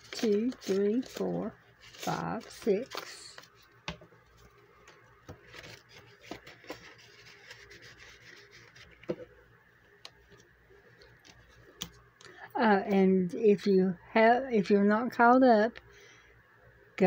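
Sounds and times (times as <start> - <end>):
paper rustling and rubbing: 0.0 - 9.3.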